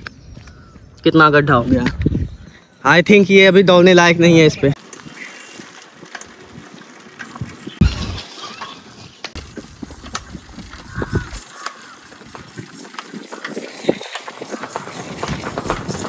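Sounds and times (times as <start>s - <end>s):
horse hoofbeats on concrete: 9.3s - 16.0s.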